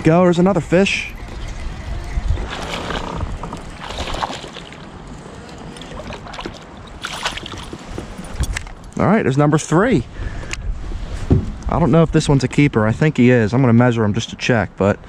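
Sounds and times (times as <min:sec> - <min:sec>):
water around kayak: 0:00.0 - 0:09.0
wind rumbling on microphone: 0:00.0 - 0:13.6
fish splashing: 0:01.2 - 0:07.8.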